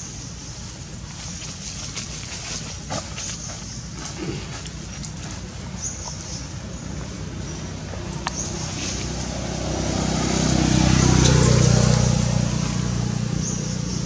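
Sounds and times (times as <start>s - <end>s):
vehicle engine passing by: 5.2s - 14.0s.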